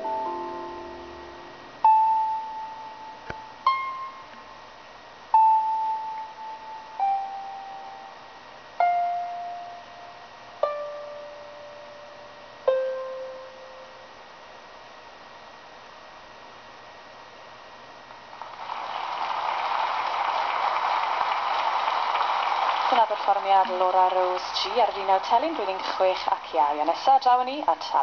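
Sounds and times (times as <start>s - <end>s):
harp plucked notes: 0.0s - 4.6s, 5.3s - 14.1s
steady hiss: 0.0s - 28.0s.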